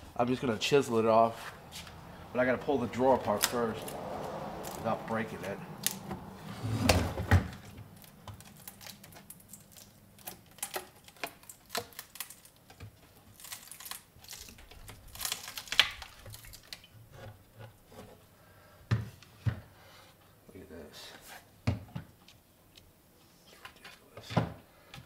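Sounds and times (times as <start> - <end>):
pressed-wood drawer cracking apart: 8.3 - 16.8.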